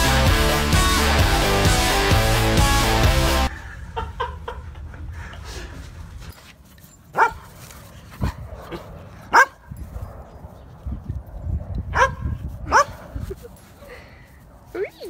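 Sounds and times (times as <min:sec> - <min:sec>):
dog barking: 0:07.2 - 0:07.4, 0:09.3 - 0:09.6, 0:11.9 - 0:13.0.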